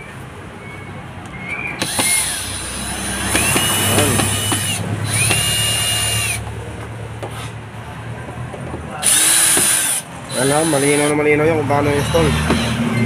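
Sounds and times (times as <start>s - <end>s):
cordless drill motor whine: 1.8s - 6.4s, 9.0s - 11.2s, 11.9s - 12.8s.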